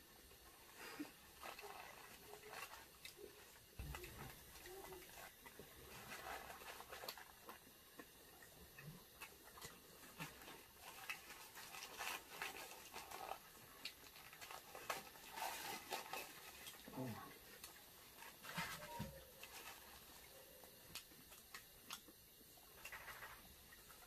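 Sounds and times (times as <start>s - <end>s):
faint chewing: 0.1s - 24.0s
paper and plastic wrappers crinkling: 0.7s - 7.6s, 9.5s - 21.6s.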